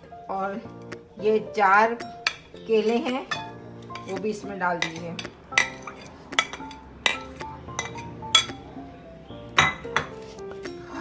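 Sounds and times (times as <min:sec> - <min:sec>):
metal spoon clinking on bowls: 0:02.2 - 0:04.2, 0:04.8 - 0:08.6.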